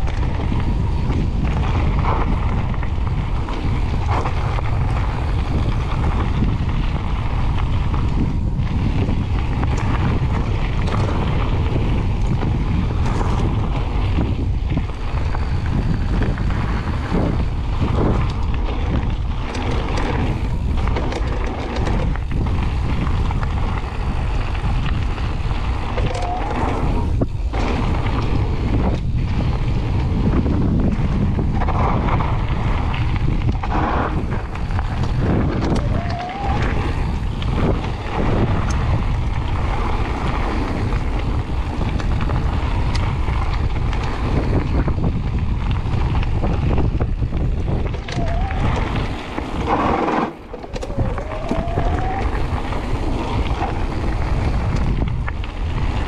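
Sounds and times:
bike tyres rolling on gravel: 0.0s - 56.0s
wind buffeting microphone: 0.0s - 56.0s
short rising whines: 50.2s - 52.5s.

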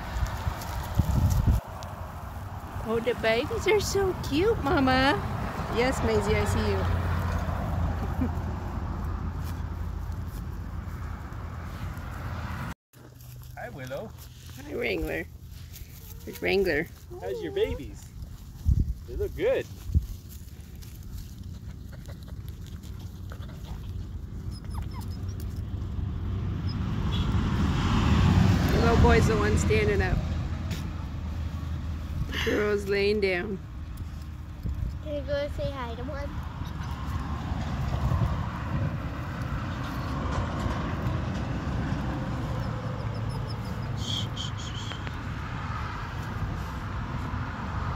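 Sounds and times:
wind buffeting microphone: 0.0s - 1.7s, 17.8s - 20.4s, 34.5s - 42.5s
wind rumble on microphone: 0.0s - 12.7s, 17.8s - 21.4s, 33.8s - 42.9s.

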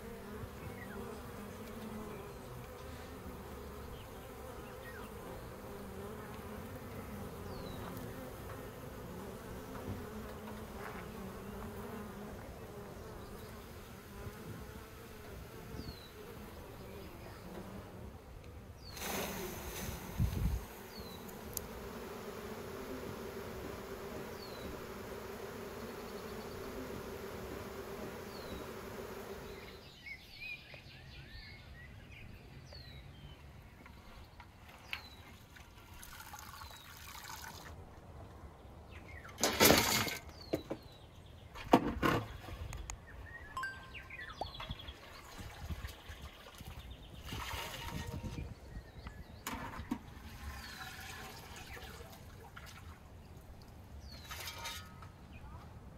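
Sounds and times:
honeybees buzzing: 0.0s - 30.0s.

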